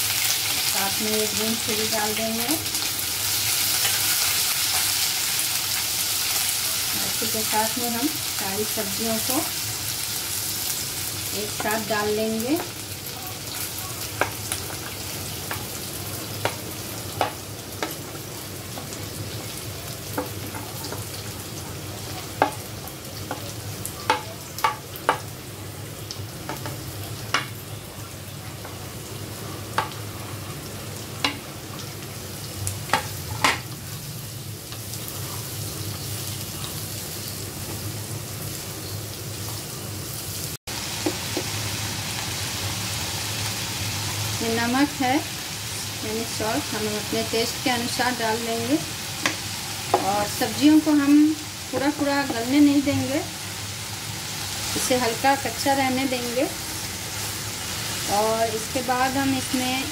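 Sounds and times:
vegetables sizzling in hot oil: 0.0 - 59.9
wooden spatula tapping pan: 14.2 - 14.8, 22.3 - 22.6, 23.2 - 25.3, 49.2 - 50.1.

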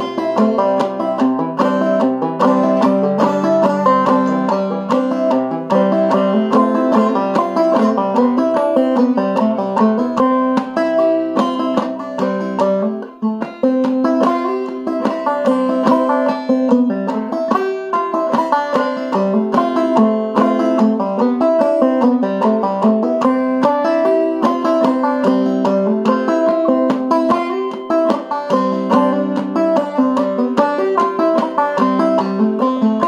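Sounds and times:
banjo plucked notes: 0.0 - 33.0.

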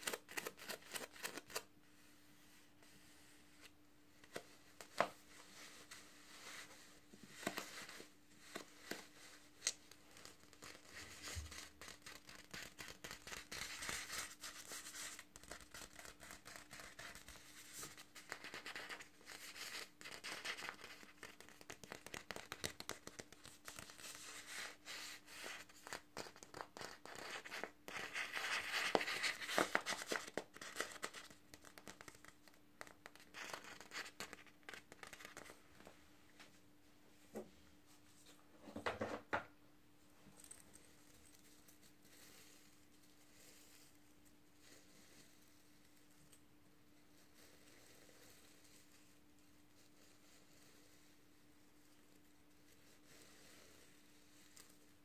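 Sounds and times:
crinkling and scratching: 0.0 - 1.7, 3.6 - 35.9.

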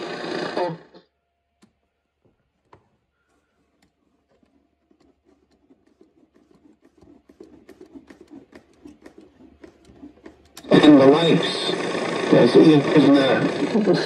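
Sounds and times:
radio speaker crackling: 10.5 - 14.0.

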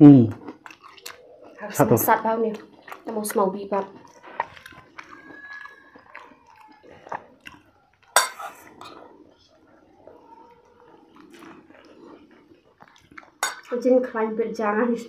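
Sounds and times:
kitchen utensils clinking: 8.1 - 9.0, 13.4 - 13.8.

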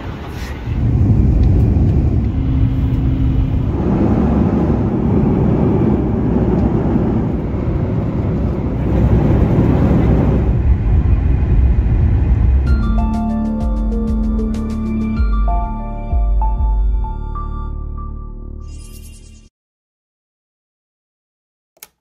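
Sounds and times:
jet airliner cabin noise: 0.0 - 13.2.

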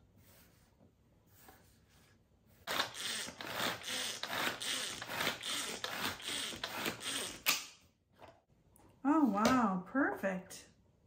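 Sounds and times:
pull-cord food chopper whirring: 2.7 - 7.6.

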